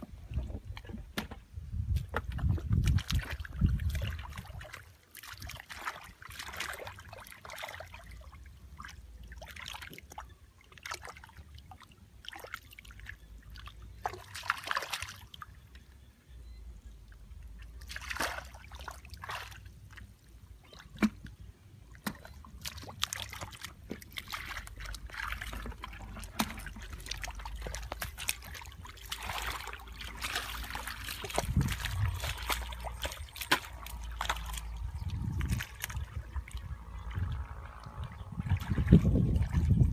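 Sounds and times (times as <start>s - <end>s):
splashing in muddy water: 0.0s - 15.8s, 17.2s - 39.9s
water trickling: 16.9s - 39.9s.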